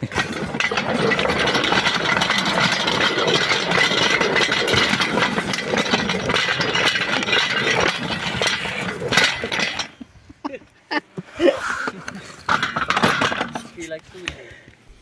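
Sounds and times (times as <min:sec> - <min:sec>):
wheels rattling over rails: 0:00.0 - 0:10.4, 0:12.1 - 0:14.0
small rail vehicle engine running: 0:00.1 - 0:08.9.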